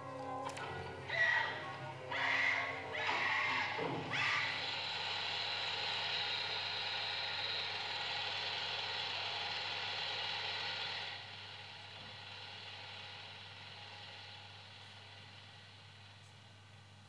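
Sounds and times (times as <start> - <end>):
film playback hiss: 0.0 - 17.0
low electrical hum: 0.0 - 17.0.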